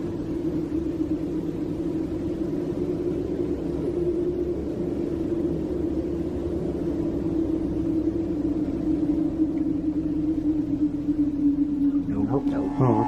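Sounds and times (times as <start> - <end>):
low droning hum: 0.0 - 13.0
low rumble: 0.0 - 13.0.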